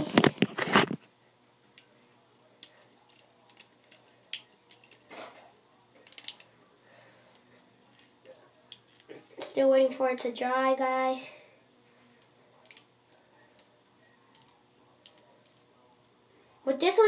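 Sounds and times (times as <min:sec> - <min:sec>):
fidget spinner clicks and taps: 0:14.3 - 0:16.2.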